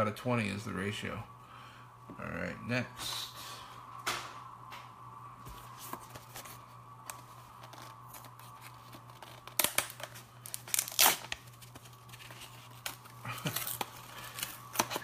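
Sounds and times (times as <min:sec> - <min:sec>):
cardboard scraping and crackling: 0:05.6 - 0:15.0
cardboard box tearing: 0:10.7 - 0:11.3.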